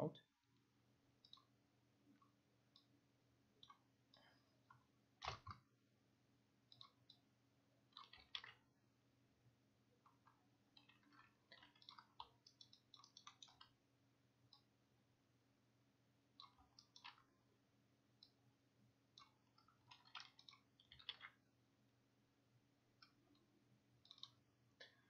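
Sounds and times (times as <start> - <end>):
computer mouse clicks: 1.2 - 1.5, 5.2 - 5.7, 6.7 - 7.2, 7.9 - 8.6, 10.1 - 13.8, 16.4 - 17.3, 19.1 - 21.4, 23.0 - 25.0.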